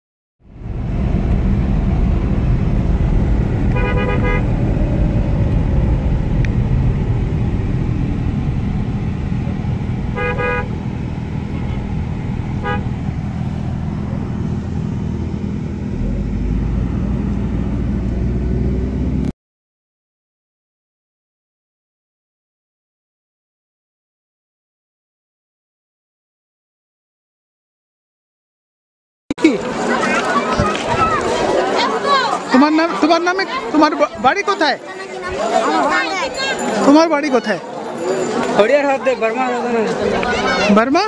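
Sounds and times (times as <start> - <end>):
engine and road noise rumbling: 0.4 - 19.3, 29.3 - 41.0
car horn honks: 3.7 - 4.6, 10.0 - 13.9.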